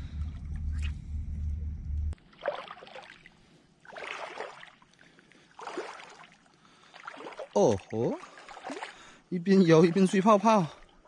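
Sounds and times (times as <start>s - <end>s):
low rumble: 0.0s - 2.2s
footsteps wading through water: 2.2s - 11.0s.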